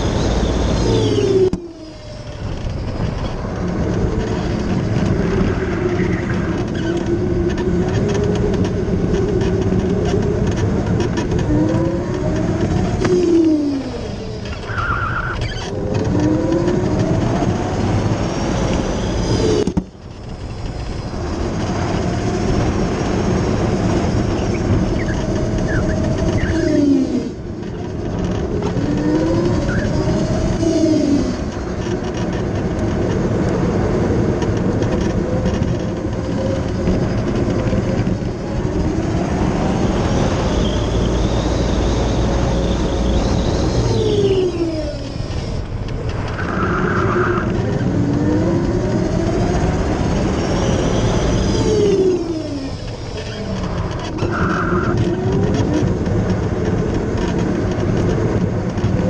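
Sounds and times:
tyre and road noise: 0:00.0 - 0:59.0
race car engine revving: 0:21.1 - 0:59.0.

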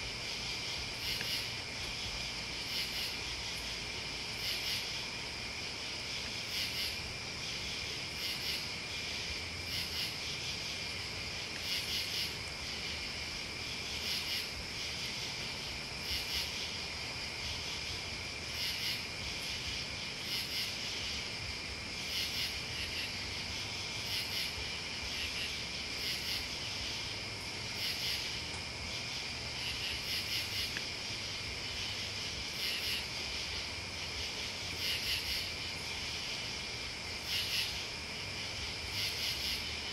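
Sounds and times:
high insect chirps: 0:00.0 - 0:39.9
insects trilling: 0:00.0 - 0:39.9.

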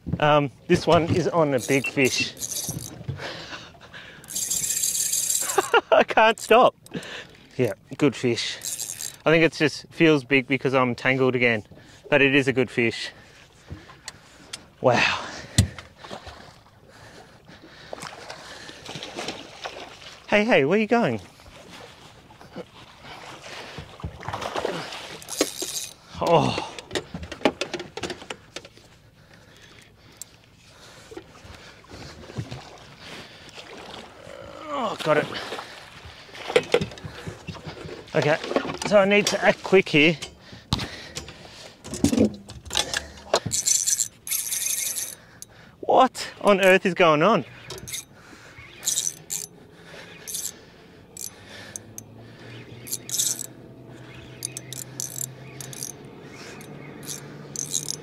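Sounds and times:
faint handling noise: 0:00.7 - 0:03.2
fishing tackle clicking and clinking: 0:01.0 - 0:03.0, 0:04.2 - 0:07.4, 0:08.4 - 0:09.4, 0:25.1 - 0:26.0, 0:41.1 - 0:45.6, 0:47.6 - 0:49.6, 0:50.2 - 0:52.2, 0:52.8 - 0:58.0.

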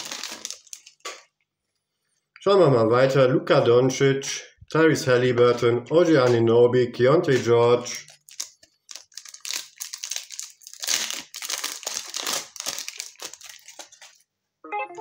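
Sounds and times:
foil wrapper crinkling: 0:00.0 - 0:01.3, 0:07.9 - 0:14.3.

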